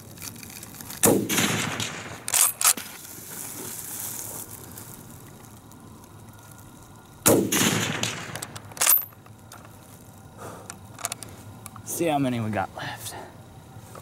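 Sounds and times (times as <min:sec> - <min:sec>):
rifle shot: 0:01.0 - 0:02.9, 0:07.2 - 0:09.0.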